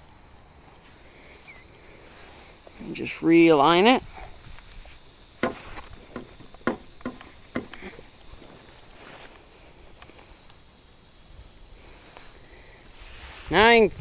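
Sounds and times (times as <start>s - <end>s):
faint outdoor background: 0.0s - 14.0s
sharp knocks and clicks: 5.4s - 7.8s.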